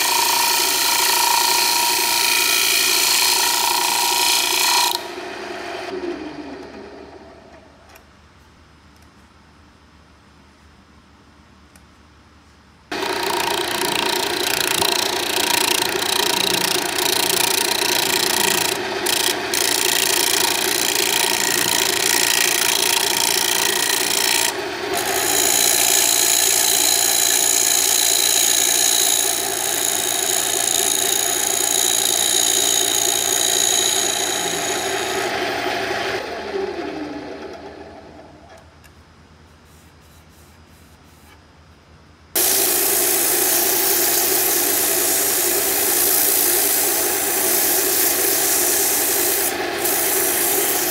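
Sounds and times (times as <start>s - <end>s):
chisel scraping spinning wood: 0.0s - 5.0s, 12.9s - 35.3s
lathe motor hum: 12.9s - 38.2s.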